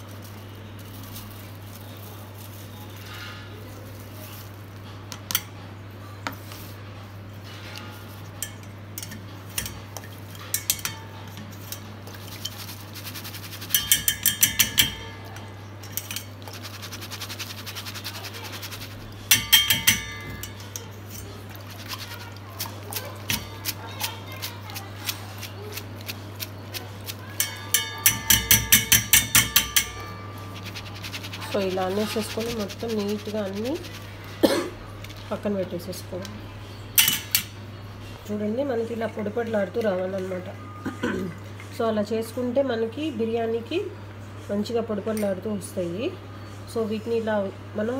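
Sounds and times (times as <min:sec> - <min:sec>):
metal strainer clinking on steel bowl: 0:08.4 - 0:22.2, 0:26.6 - 0:34.1, 0:37.0 - 0:37.6.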